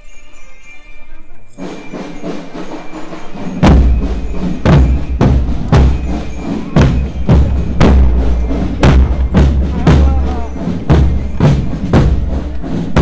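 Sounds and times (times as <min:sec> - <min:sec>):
rattle of snare drumming: 0:01.6 - 0:13.0
bass drum strokes: 0:03.4 - 0:13.0.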